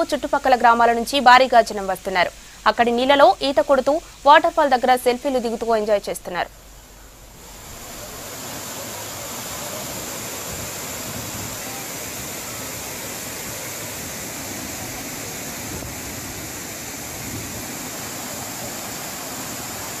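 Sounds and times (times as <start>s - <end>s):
water cascading over rock ledge: 6.6s - 20.0s.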